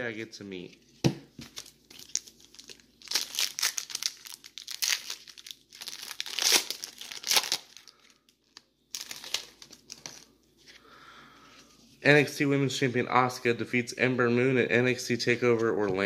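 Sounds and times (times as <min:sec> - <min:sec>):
cards rustling in hands: 0:00.6 - 0:10.9
foil wrapper crinkling and tearing: 0:01.4 - 0:10.3.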